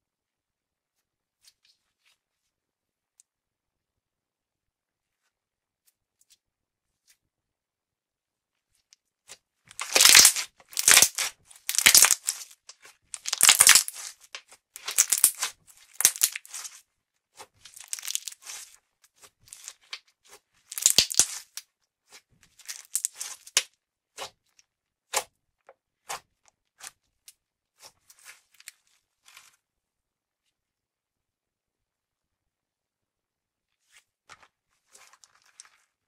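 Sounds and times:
slime crackling and popping: 9.7s - 16.8s, 17.6s - 18.7s, 20.7s - 21.6s, 22.6s - 24.3s.

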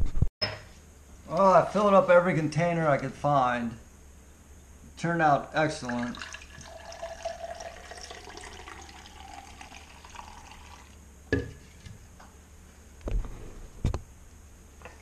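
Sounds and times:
juice pouring into a glass: 5.8s - 11.0s.

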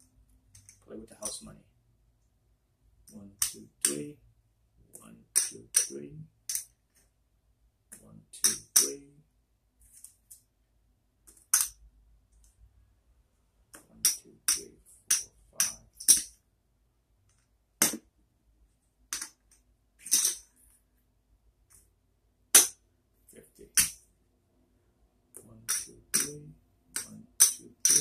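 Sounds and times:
poker chips clacking: 20.0s - 20.5s.

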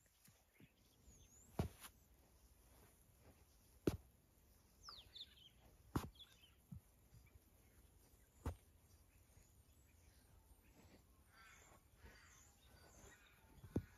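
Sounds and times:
high bird chirp falling in pitch: 4.8s - 7.4s.

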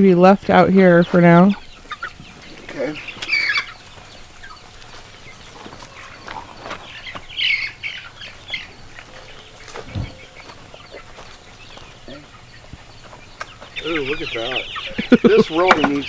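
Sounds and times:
chickens clucking and peeping: 0.0s - 16.0s
low thump: 9.8s - 10.2s.

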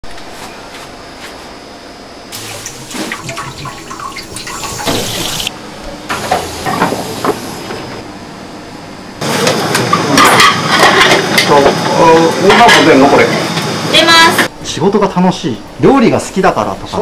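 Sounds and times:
water running from sink: 2.3s - 5.5s
busy kitchen clatter: 2.4s - 8.0s, 9.2s - 14.5s
plates clattering: 10.1s - 11.5s.

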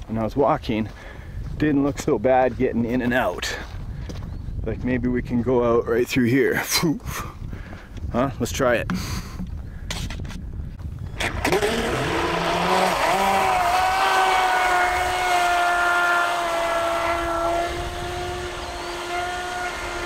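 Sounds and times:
electric motor whining: 11.1s - 20.0s.

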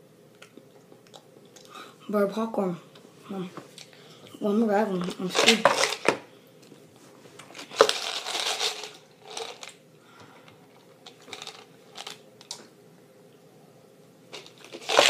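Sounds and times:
plastic toy clicks and rattles: 7.7s - 9.7s, 14.4s - 15.0s.

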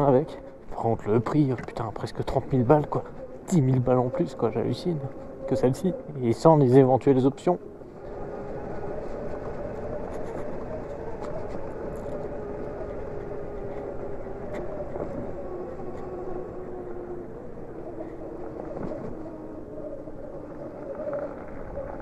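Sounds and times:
wind and road noise: 0.0s - 22.0s.

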